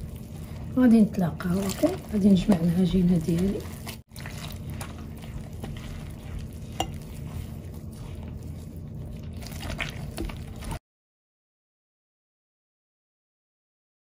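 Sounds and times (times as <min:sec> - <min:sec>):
hands squishing dough: 0:00.0 - 0:10.8
steady low hum: 0:00.0 - 0:10.8.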